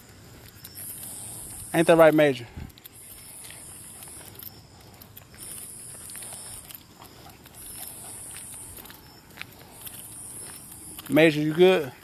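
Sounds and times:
footsteps on pavement: 0.0s - 12.0s
high-pitched insect trills: 0.0s - 12.0s.

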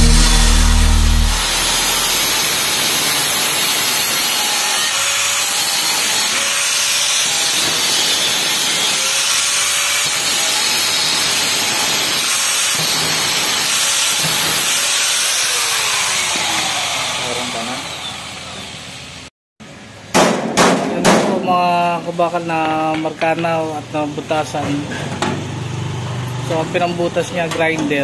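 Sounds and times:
angle grinder cutting metal: 0.0s - 19.2s.

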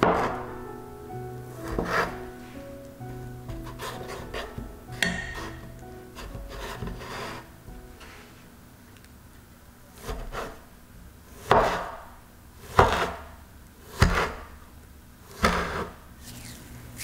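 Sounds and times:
scraper chopping on wooden board: 1.6s - 2.2s, 3.5s - 7.4s, 11.5s - 11.9s, 12.7s - 13.2s, 14.0s - 14.4s.

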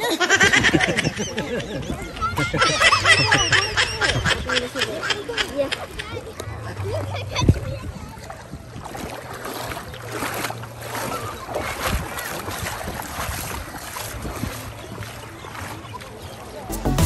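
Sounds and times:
water splashing and lapping: 0.0s - 16.8s
faint voices: 0.0s - 16.9s
wind noise on microphone: 0.3s - 4.7s, 7.3s - 9.2s, 11.5s - 14.9s.

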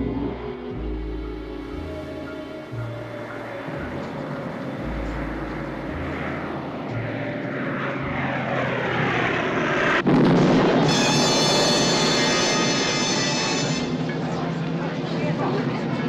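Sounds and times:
propeller plane engines droning: 0.0s - 16.0s
loud explosion: 10.0s - 13.3s.

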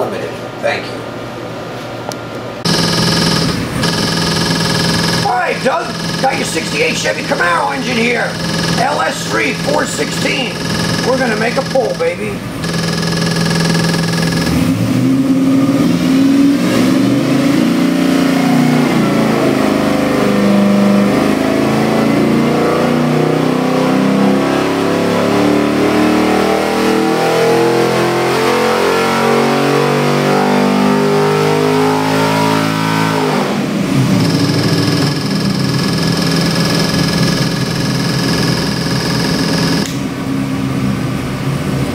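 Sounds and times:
engine full-throttle pull: 2.7s - 14.9s, 34.0s - 40.1s.

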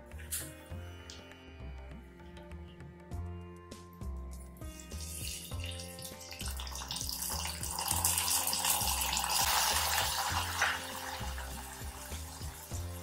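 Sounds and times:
background music with bass beat: 0.0s - 13.0s
hot ghee sizzling: 4.6s - 13.0s.

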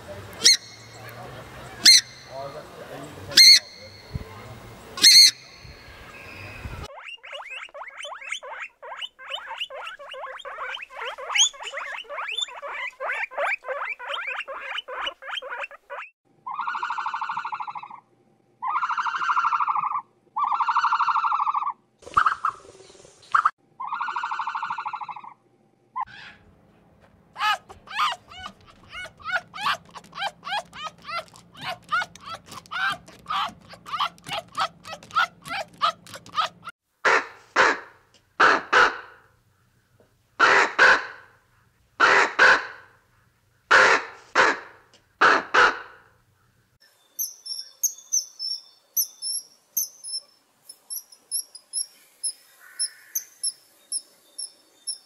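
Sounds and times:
bird screeching: 1.8s - 2.4s, 3.4s - 4.1s, 5.0s - 5.7s, 6.3s - 17.7s, 27.4s - 36.7s
fox yelping: 7.0s - 18.0s, 18.6s - 21.8s, 27.4s - 36.7s
long even animal calls: 27.4s - 36.7s
rapid chattering clicks: 27.9s - 36.7s.

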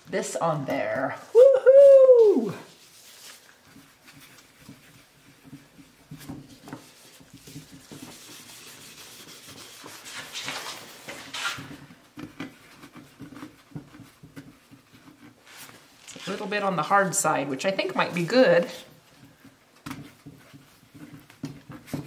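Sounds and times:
rag rubbing wooden board: 2.7s - 17.0s.

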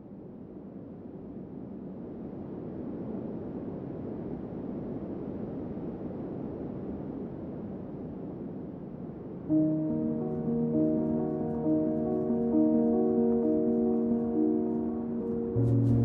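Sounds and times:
low steady rushing noise: 0.0s - 16.0s.

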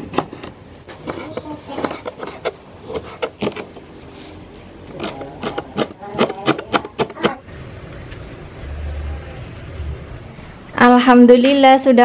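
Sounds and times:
knife cutting on plastic board: 0.1s - 3.9s, 4.9s - 7.4s
knife chopping herbs: 1.0s - 3.8s, 4.9s - 7.4s.

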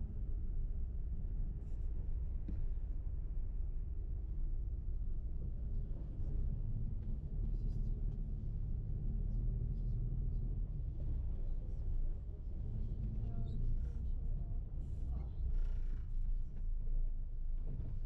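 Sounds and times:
bus engine and road rumble: 0.0s - 18.0s.

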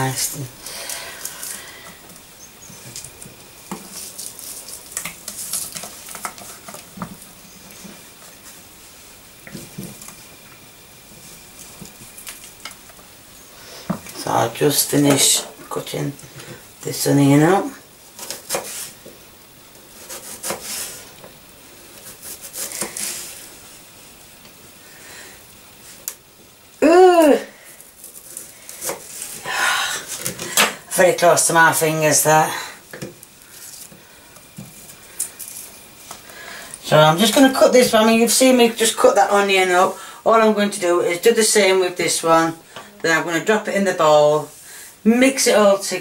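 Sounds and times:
onion crackly rustling: 0.0s - 13.2s, 14.1s - 24.4s, 25.8s - 37.8s
knife slicing onion on board: 18.2s - 18.9s, 20.0s - 21.0s, 22.0s - 23.3s.

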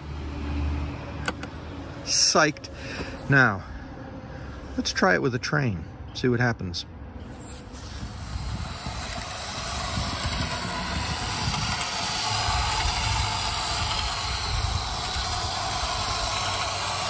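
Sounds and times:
model train rolling rumble: 7.7s - 17.0s.

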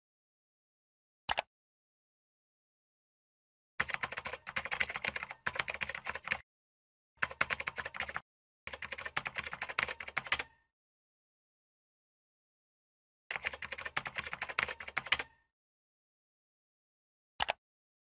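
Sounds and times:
computer keyboard typing: 3.8s - 6.4s, 7.2s - 10.6s, 13.3s - 15.4s.

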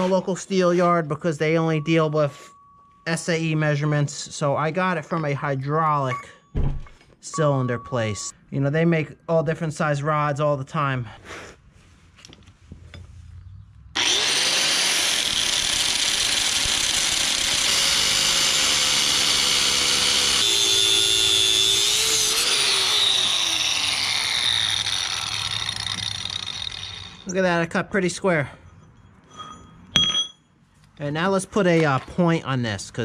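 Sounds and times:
angle grinder cutting steel: 14.0s - 27.4s.

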